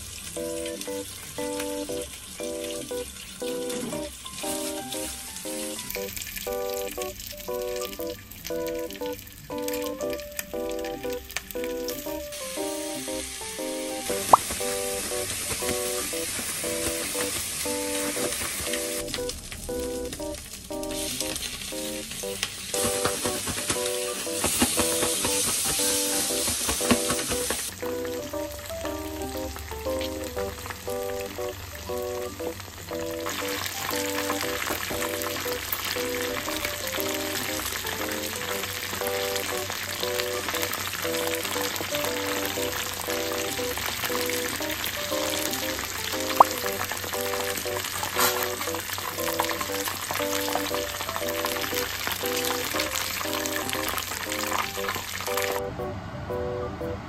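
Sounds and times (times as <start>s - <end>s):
chicken deep-frying in oil: 0.0s - 55.6s
light background music: 0.4s - 57.0s
plastic bag shaken: 22.8s - 27.7s.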